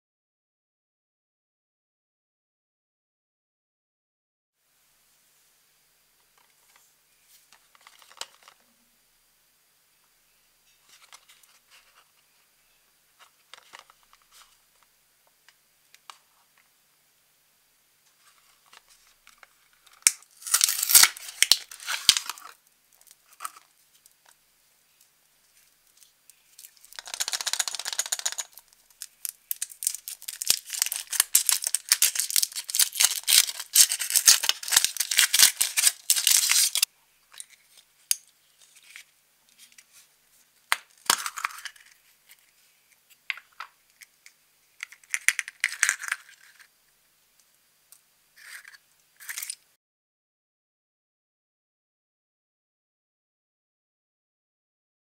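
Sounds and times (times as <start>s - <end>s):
plastic capsule clicks and paper rustling: 7.5s - 8.6s, 13.5s - 14.5s, 18.7s - 24.4s, 25.9s - 40.0s, 40.7s - 46.7s
foil wrapper crinkling: 19.9s - 23.7s, 25.9s - 36.9s.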